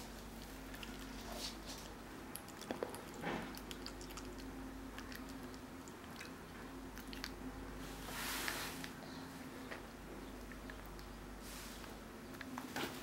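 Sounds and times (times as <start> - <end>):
low steady hum: 0.0 - 13.0
baby chewing mouth clicks: 1.8 - 7.4.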